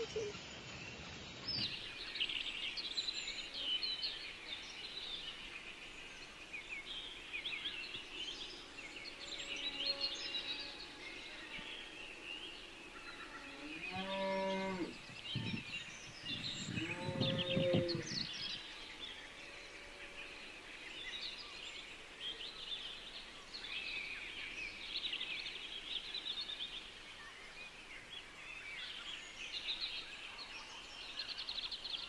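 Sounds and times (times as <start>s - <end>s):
small birds chirping: 0.0s - 30.2s
cow lowing: 16.3s - 18.3s.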